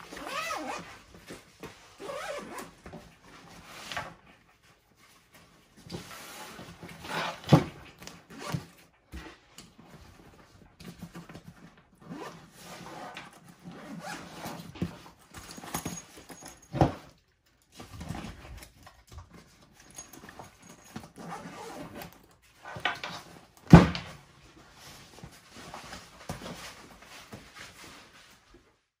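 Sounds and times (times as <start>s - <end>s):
backpack fabric rustling: 0.0s - 3.7s, 12.0s - 16.7s, 19.9s - 22.2s.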